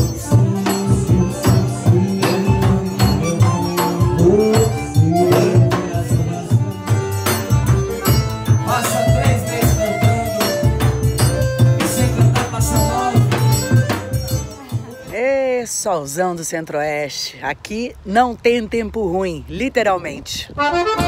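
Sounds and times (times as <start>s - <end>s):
hand drum and percussion beat: 0.0s - 15.8s
accordion melody: 0.0s - 16.8s, 20.3s - 21.0s.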